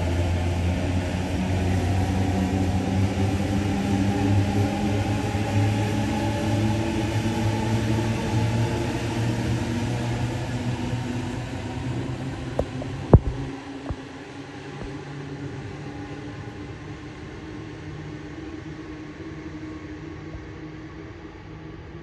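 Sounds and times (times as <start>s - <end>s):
electric rail vehicle hum: 0.0s - 22.0s.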